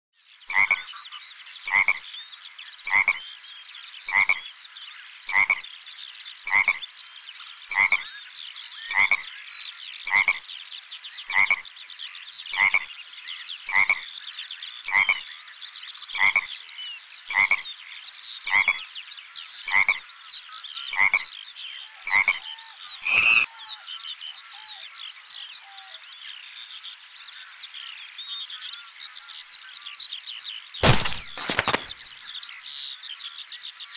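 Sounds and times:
frog croaking: 0.5s - 0.9s, 2.9s - 3.2s, 23.0s - 23.5s
high chirping: 23.0s - 23.5s
sharp loud sound: 30.8s - 32.1s.

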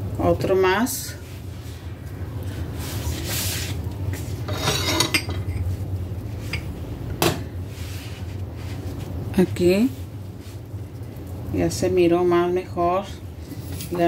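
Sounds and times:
steady low hum: 0.0s - 14.0s
utensils scraping a bowl: 4.4s - 5.6s.

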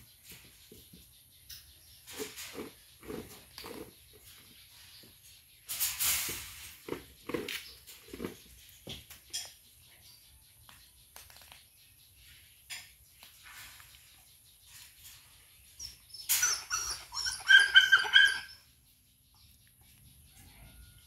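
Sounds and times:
animal whining cries: 16.3s - 18.6s.

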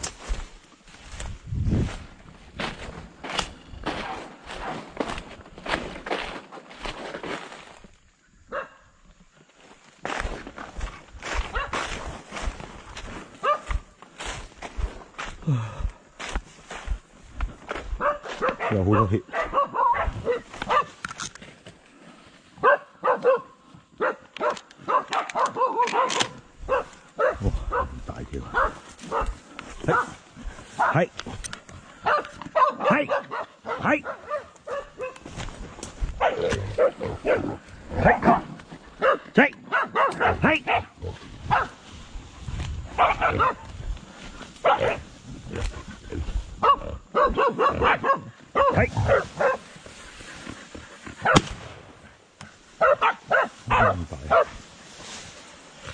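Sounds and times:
dogs barking and yelping: 11.3s - 12.0s, 13.4s - 13.8s, 17.9s - 21.0s, 22.6s - 31.0s, 32.0s - 41.8s, 42.9s - 43.8s, 44.6s - 45.2s, 46.6s - 50.2s, 50.9s - 51.4s, 52.7s - 54.6s.

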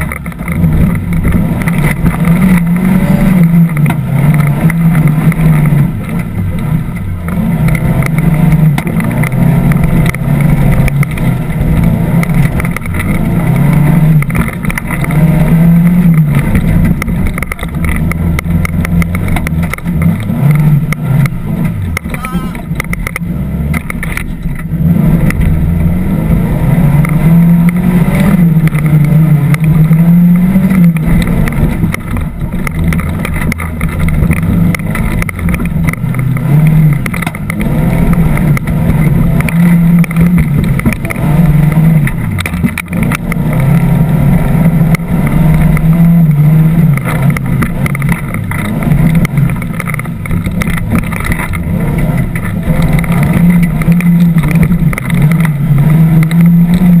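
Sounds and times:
off-road vehicle engine revving: 0.0s - 57.0s.

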